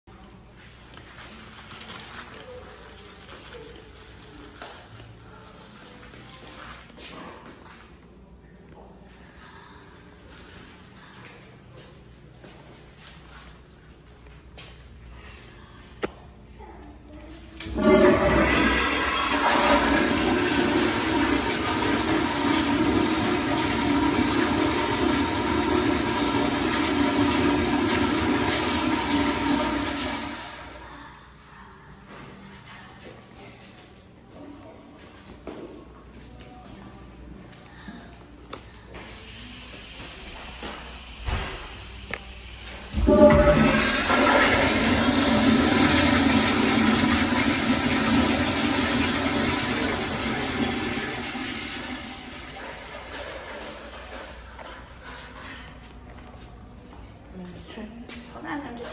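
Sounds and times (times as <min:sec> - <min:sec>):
toilet flushing: 0:17.6 - 0:31.0, 0:39.0 - 0:55.4.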